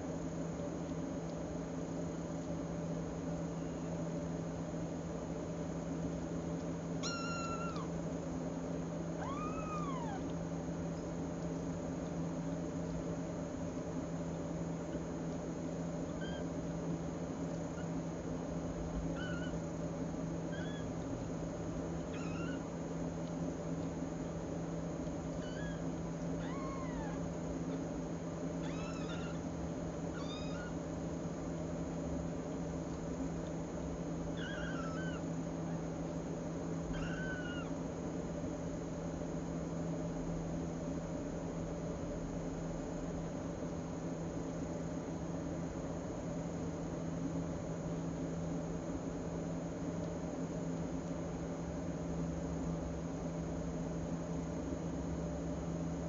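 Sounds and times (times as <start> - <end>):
steady low hum: 0.0 - 56.0
cat meowing: 7.0 - 7.9, 9.2 - 10.3, 19.1 - 19.6, 20.5 - 20.9, 22.1 - 22.7, 25.4 - 25.8, 26.4 - 27.2, 28.6 - 29.4, 30.1 - 30.8, 34.4 - 35.2, 36.9 - 37.8
kittens mewing: 7.0 - 8.0, 9.1 - 10.4, 16.0 - 16.7, 19.0 - 19.7, 20.4 - 21.0, 21.9 - 22.8, 25.3 - 27.9, 28.5 - 30.9, 34.3 - 35.9, 36.8 - 37.8.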